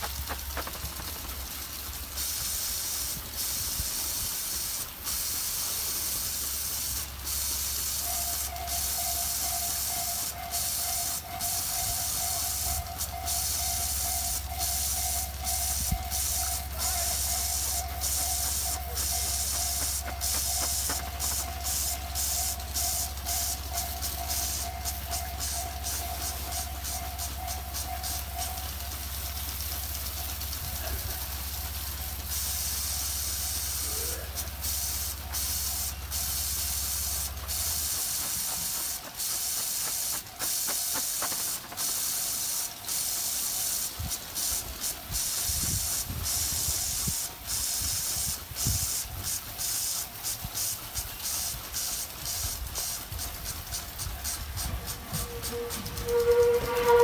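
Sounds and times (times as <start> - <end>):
hissing wind: 0.0 - 57.0.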